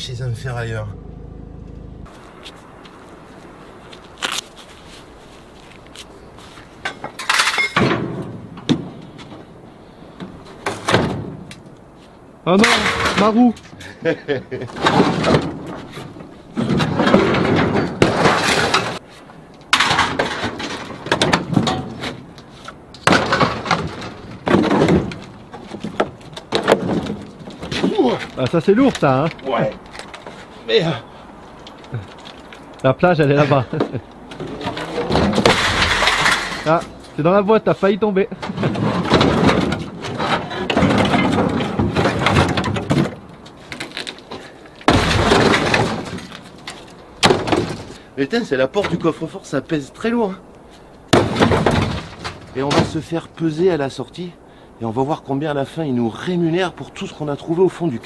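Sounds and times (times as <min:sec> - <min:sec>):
scrap iron clanking and scraping: 0:06.4 - 0:11.5, 0:14.6 - 0:19.1, 0:19.7 - 0:28.4, 0:33.5 - 0:37.2, 0:38.3 - 0:48.0
scrap metal crashing onto pile: 0:06.9 - 0:08.4, 0:19.8 - 0:22.0, 0:23.0 - 0:25.3, 0:34.4 - 0:36.9, 0:38.4 - 0:43.1, 0:44.8 - 0:46.4.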